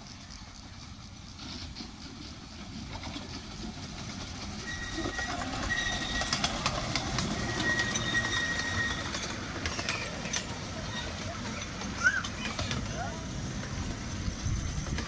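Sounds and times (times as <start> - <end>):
miniature steam locomotive passing: 0.0 - 15.0
wheels clicking on track: 0.0 - 15.0
thin high squeal: 4.6 - 12.6.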